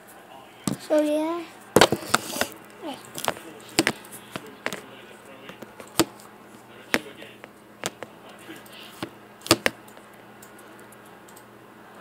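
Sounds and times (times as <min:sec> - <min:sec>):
sharp clicks and knocks: 0:05.5 - 0:06.1, 0:07.0 - 0:08.1, 0:09.0 - 0:10.0.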